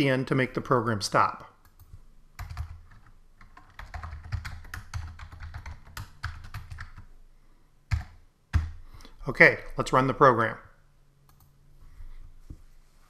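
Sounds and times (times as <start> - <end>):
computer keyboard typing: 1.6 - 7.1, 7.9 - 8.8.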